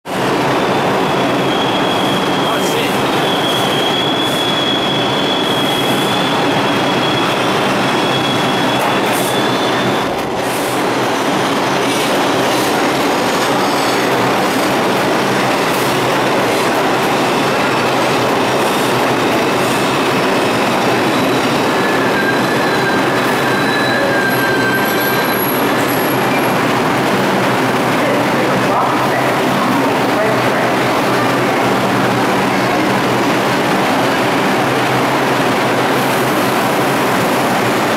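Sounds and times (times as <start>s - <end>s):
train wheels rumbling on rail: 0.1s - 37.9s
high wheel squeal: 1.0s - 10.2s, 13.5s - 14.6s, 19.3s - 26.6s.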